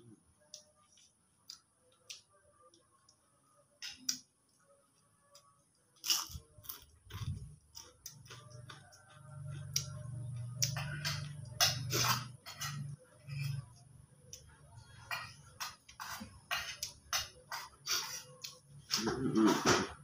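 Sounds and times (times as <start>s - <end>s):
crunchy chewing: 0.4s - 19.6s
low hum: 7.1s - 15.7s.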